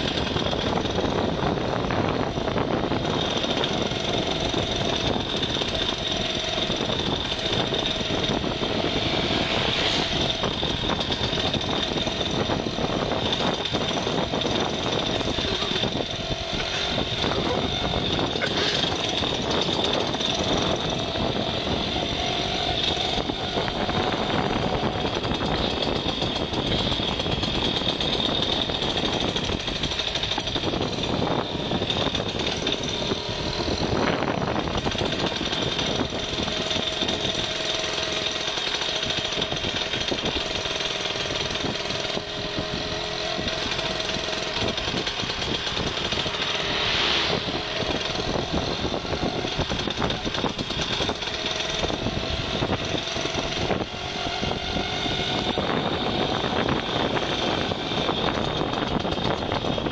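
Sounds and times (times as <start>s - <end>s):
rattling vehicle noise: 0.0s - 59.9s
wind buffeting microphone: 0.0s - 59.9s.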